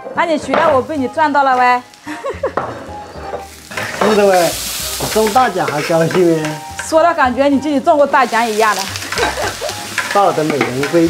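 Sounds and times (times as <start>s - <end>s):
vegetables sizzling in hot oil: 0.4s - 11.0s
metal spatula stirring in wok: 3.5s - 7.0s, 9.0s - 11.0s.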